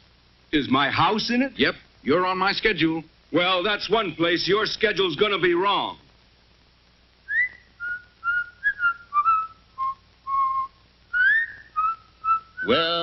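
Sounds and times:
man whistling a tune: 7.3 - 12.8.

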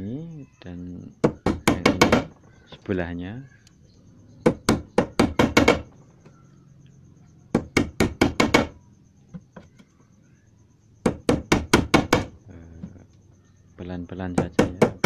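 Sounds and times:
hammer tapping on chisel: 1.2 - 2.3, 4.5 - 5.9, 14.4 - 15.0.

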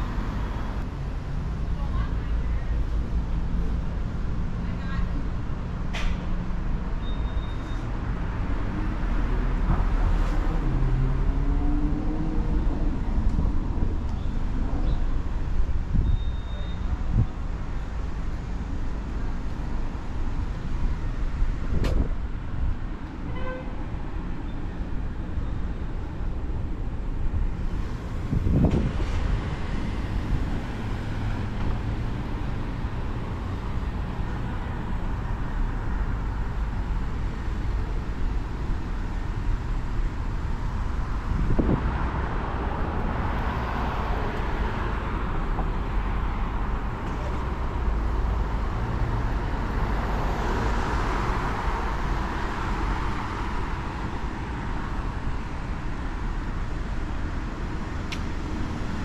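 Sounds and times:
road traffic rumble: 0.0 - 59.0
short beep: 7.0 - 7.9, 16.0 - 16.9.

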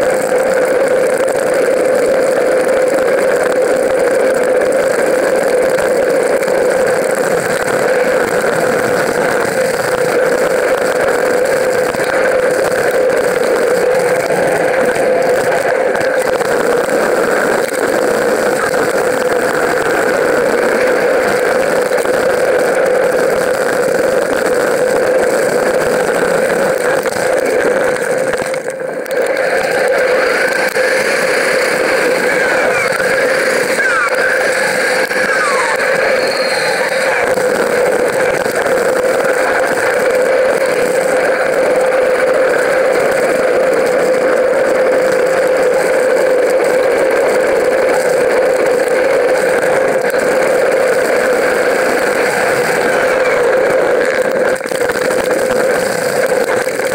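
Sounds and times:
mountain bike riding noise: 0.0 - 56.9.

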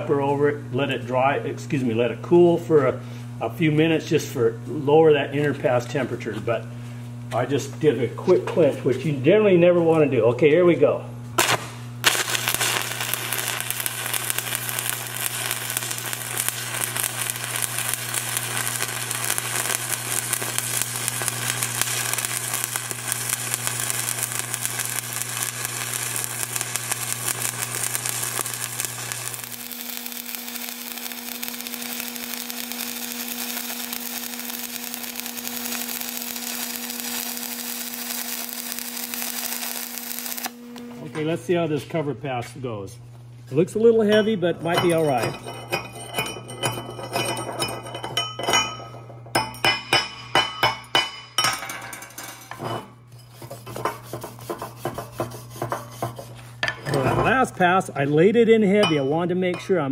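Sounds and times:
welding arc crackling: 11.4 - 41.6, 43.6 - 52.6.

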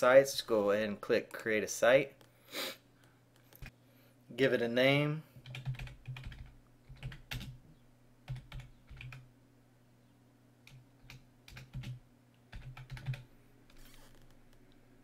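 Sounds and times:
typing on computer keyboard: 5.4 - 7.6, 8.3 - 9.2, 10.7 - 13.9.

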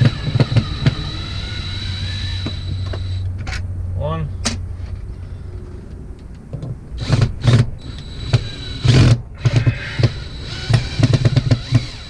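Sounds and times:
cordless drill whining in bursts: 0.0 - 3.3, 7.0 - 12.0.

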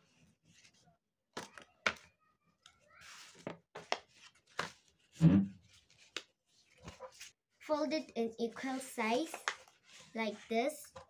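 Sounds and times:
paper rustling: 2.9 - 7.4, 8.5 - 10.5.

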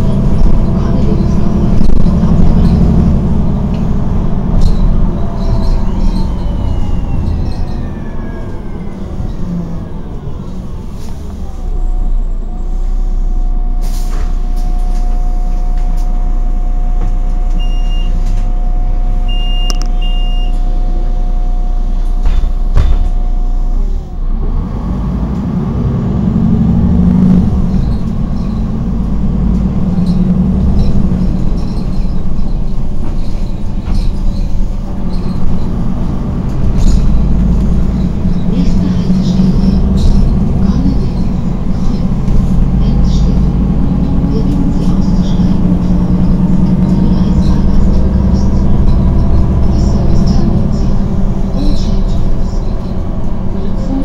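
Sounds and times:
bus engine running: 0.0 - 54.0
short high beeps: 19.3 - 20.6.

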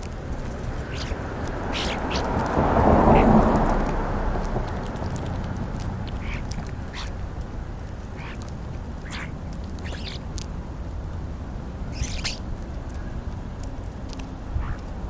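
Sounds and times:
steady low rumble: 0.0 - 15.0
starlings harsh calls: 0.5 - 3.9, 6.0 - 7.2, 8.0 - 10.3, 11.9 - 13.2, 14.5 - 15.0.

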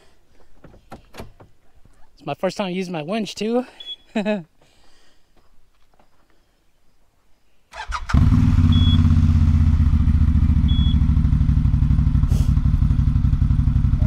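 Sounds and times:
short high beeps: 3.8 - 4.1, 8.7 - 9.1, 10.7 - 11.0
electric starter cranking engine: 7.8 - 9.2
engine pulsing idle: 8.1 - 14.0.

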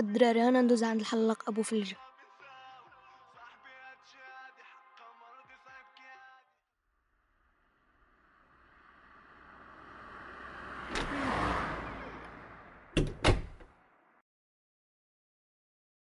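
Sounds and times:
car driving past: 7.4 - 13.0
knock: 13.0 - 13.6.

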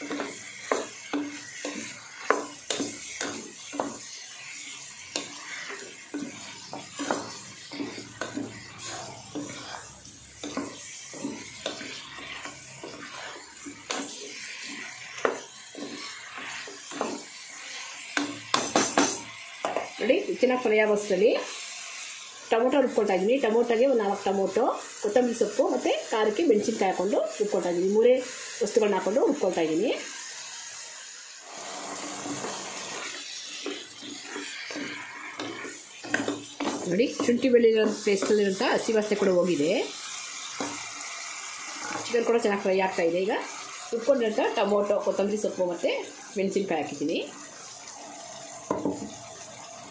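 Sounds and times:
spatula scraping metal pot: 0.0 - 19.9, 31.5 - 42.4
oil sizzling: 0.0 - 49.9.

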